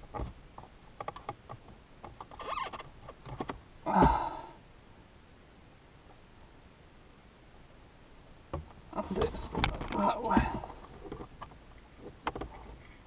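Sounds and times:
person sighing: 0:03.8 - 0:04.6.

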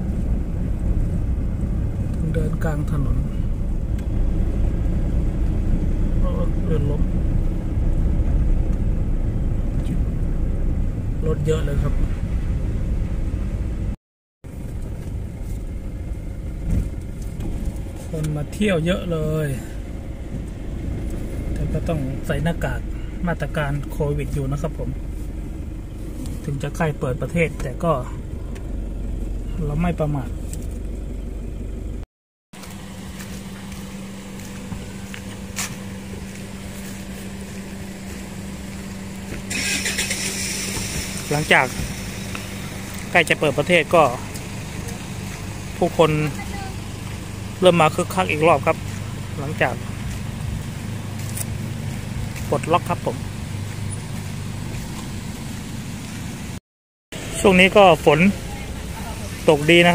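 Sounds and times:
car driving on wet road: 0:00.0 - 0:32.0, 0:32.6 - 0:56.6, 0:57.2 - 0:59.9
vehicle engine humming: 0:00.0 - 0:59.9.

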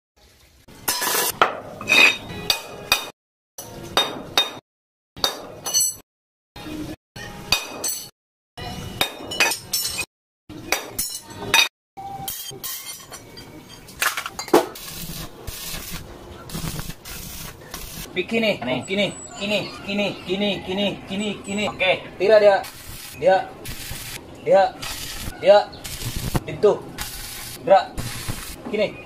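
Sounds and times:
steel pieces clinking on concrete: 0:00.9 - 0:02.6, 0:05.6 - 0:06.0, 0:09.0 - 0:10.1, 0:12.3 - 0:14.6.

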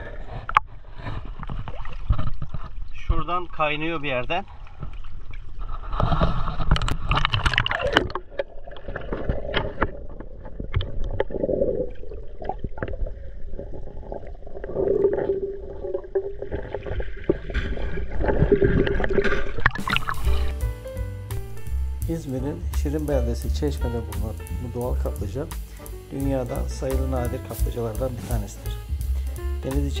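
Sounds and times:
sea water sloshing and gurgling: 0:00.0 - 0:20.5
small underwater clicks: 0:04.8 - 0:13.2.

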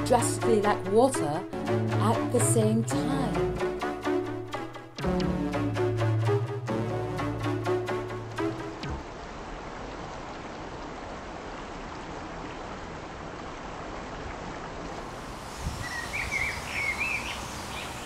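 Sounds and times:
river water rushing: 0:07.4 - 0:18.0
bird chirping: 0:15.8 - 0:18.0.

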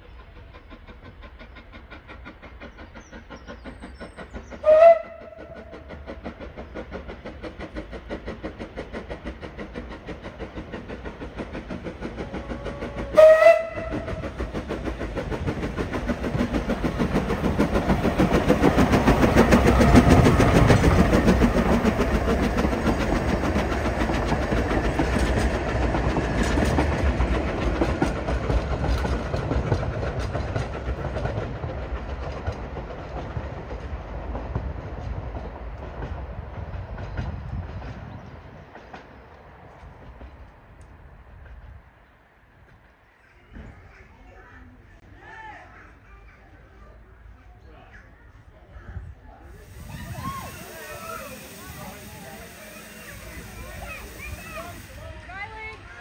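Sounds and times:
steam locomotive chuffing: 0:00.0 - 0:41.8, 0:49.1 - 0:56.0
steam whistle: 0:04.6 - 0:05.4, 0:13.0 - 0:14.1, 0:49.7 - 0:55.0.

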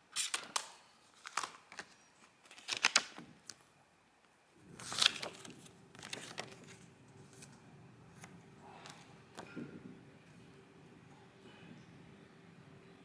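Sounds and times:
paper rustling: 0:00.1 - 0:03.7, 0:04.6 - 0:09.6
faint low hum: 0:00.7 - 0:13.0.

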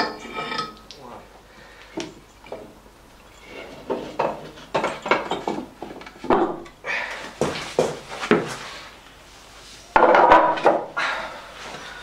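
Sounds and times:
metal clanks and knocks: 0:00.0 - 0:00.9, 0:03.6 - 0:06.7, 0:10.0 - 0:10.9.

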